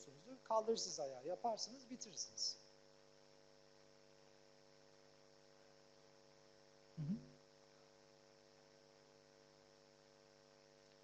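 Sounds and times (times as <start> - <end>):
electrical mains hum: 0.0 - 11.0
brief low sound: 7.0 - 7.2.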